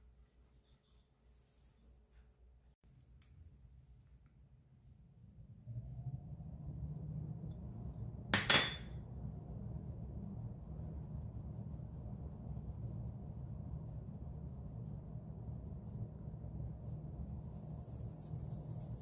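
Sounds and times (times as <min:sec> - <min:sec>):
steady low hum: 0:02.9 - 0:19.0.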